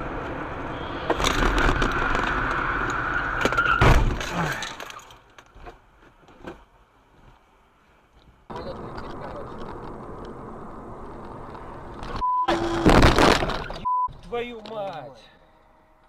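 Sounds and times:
car tyres squealing: 0.6s - 4.1s
loud crunching car impact: 3.5s - 4.5s, 12.5s - 13.8s.

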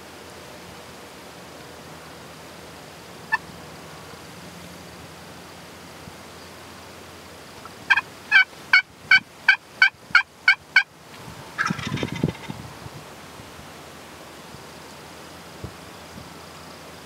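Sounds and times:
turkey gobble: 7.9s - 10.9s, 11.6s - 12.6s
turkey yelping: 7.9s - 10.9s, 11.6s - 12.5s.

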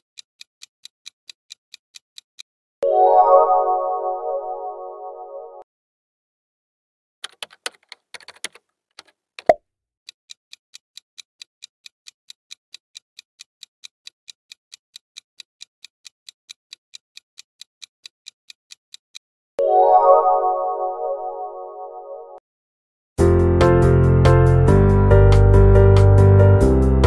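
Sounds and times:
fast clock ticking: 0.0s - 2.5s, 10.3s - 19.2s
quick clicks: 7.2s - 9.6s
musical chime: 19.6s - 22.3s.

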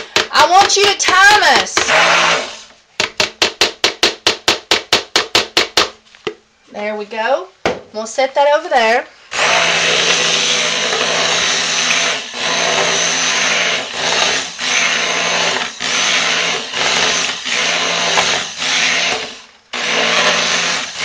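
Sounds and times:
stick blender motor whirring: 0.0s - 2.7s, 9.3s - 21.0s.

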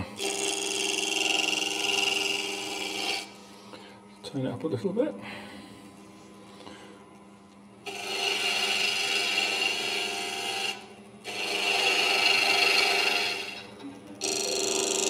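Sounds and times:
lathe gouge cutting wood: 0.2s - 3.3s, 7.8s - 15.0s.

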